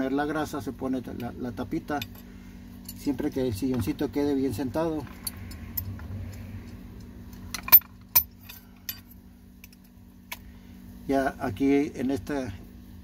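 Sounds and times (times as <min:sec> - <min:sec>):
metal parts clicking and clinking: 0:07.4 - 0:10.4.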